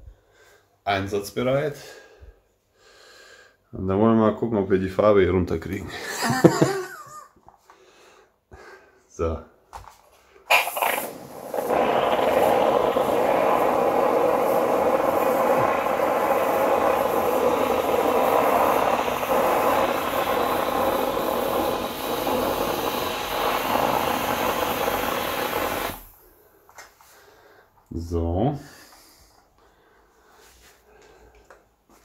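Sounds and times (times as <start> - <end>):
steam cleaner hissing: 10.5 - 26.2.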